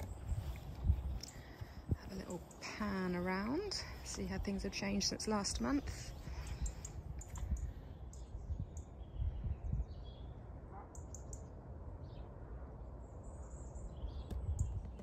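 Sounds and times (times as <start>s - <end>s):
faint bird chirps: 6.1s - 11.5s.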